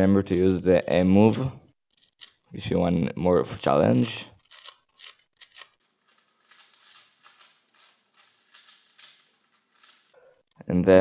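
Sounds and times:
plastic puzzle clicking and scraping: 4.4 - 10.5.

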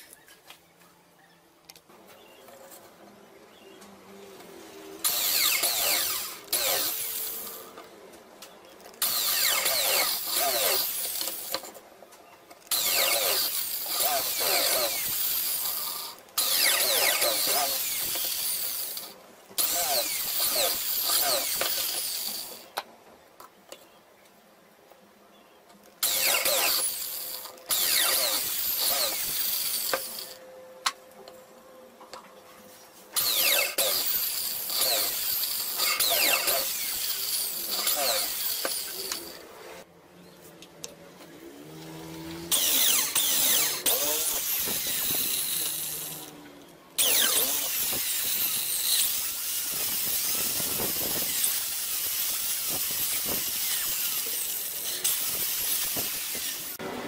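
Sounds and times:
power drill boring plywood: 5.0 - 7.8, 9.0 - 11.7, 12.7 - 22.7, 26.0 - 30.4, 33.2 - 39.4, 42.0 - 46.4, 47.0 - 57.0.

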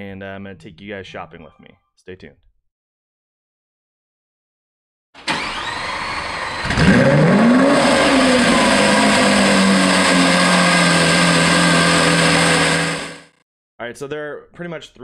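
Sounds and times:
car engine starting and idling: 5.2 - 13.3.

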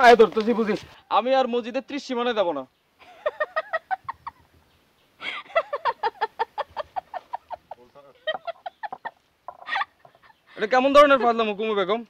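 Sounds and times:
woman laughing: 3.0 - 4.5, 5.2 - 11.3.

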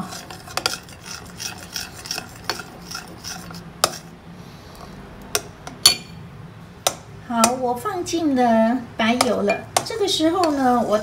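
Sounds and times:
spoon scraping a ceramic bowl: 0.0 - 4.1, 10.3 - 11.0.

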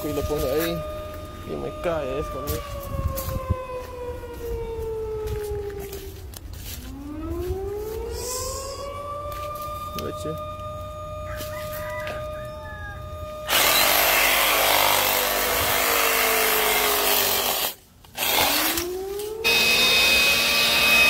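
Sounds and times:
leaf blower whining: 0.0 - 21.0
chainsaw cutting branch: 13.5 - 21.0.

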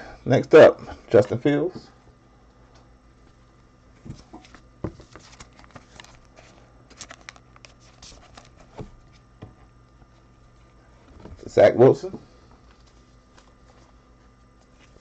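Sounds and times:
cards clicking and rustling: 4.3 - 8.9.

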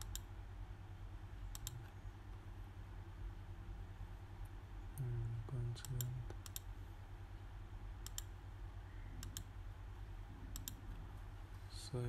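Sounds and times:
computer mouse clicking: 0.0 - 0.3, 1.5 - 1.9, 5.8 - 6.7, 8.0 - 8.3, 9.2 - 9.5, 10.5 - 11.0
low steady hum: 0.0 - 12.0.

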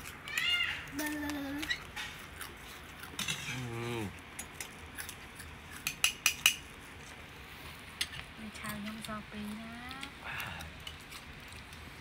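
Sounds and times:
person humming while chewing: 3.5 - 4.2.

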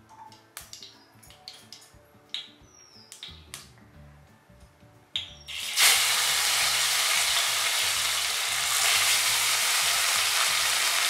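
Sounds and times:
fish frying in oil: 5.5 - 11.0.

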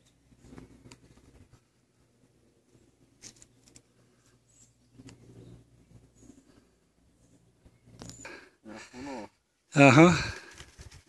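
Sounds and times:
soft clicks and rustles: 0.0 - 1.8, 3.1 - 6.7.

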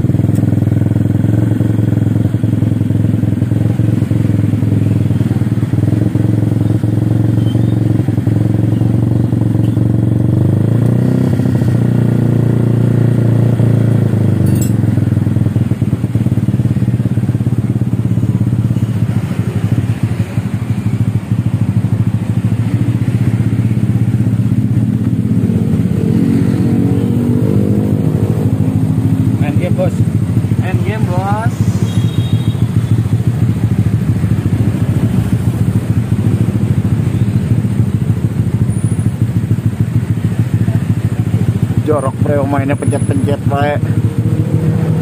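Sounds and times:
scooter engine revving: 0.0 - 45.0.

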